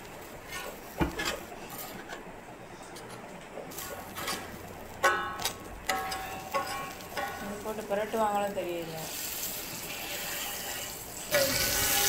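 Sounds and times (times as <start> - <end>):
spatula scraping frying pan: 0.4 - 2.2, 5.9 - 7.9, 9.1 - 12.0
metal spatula clinking: 5.0 - 7.8.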